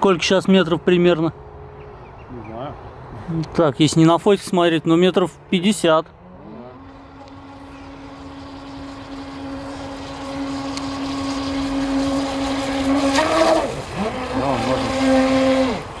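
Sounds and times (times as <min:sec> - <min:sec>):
model boat motor whine: 0:06.1 - 0:16.0.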